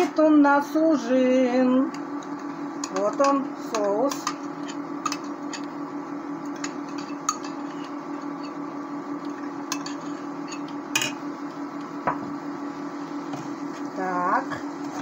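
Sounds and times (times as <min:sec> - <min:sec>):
induction cooktop hum: 0:00.0 - 0:15.0.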